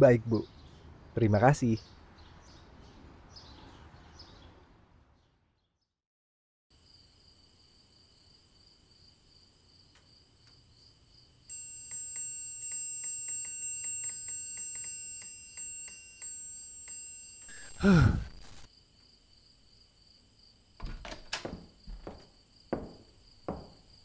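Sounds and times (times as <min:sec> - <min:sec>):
faint steady chirping: 0:10.6 - 0:20.2
sparkling chime tones: 0:11.5 - 0:18.7.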